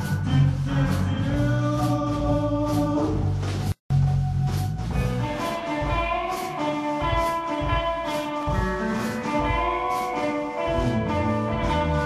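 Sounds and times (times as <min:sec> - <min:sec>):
bass guitar: 0:00.0 - 0:12.0
drum kit with cymbal hits: 0:00.0 - 0:12.0
electric guitar lead notes: 0:05.0 - 0:12.0.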